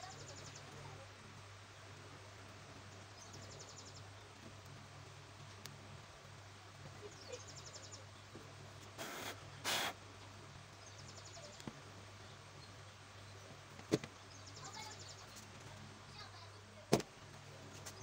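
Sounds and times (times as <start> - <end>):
hissing bursts: 8.9 - 10.0.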